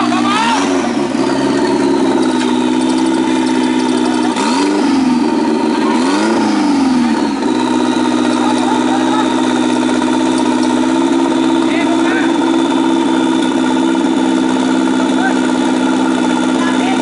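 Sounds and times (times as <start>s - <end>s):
buggy engine idling and revving: 0.0s - 17.0s.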